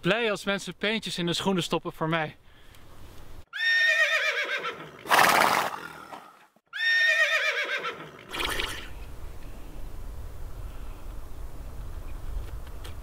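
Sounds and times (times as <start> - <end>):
horse whinnying: 3.5 - 8.9
horse snorting: 4.6 - 6.5, 7.5 - 8.9.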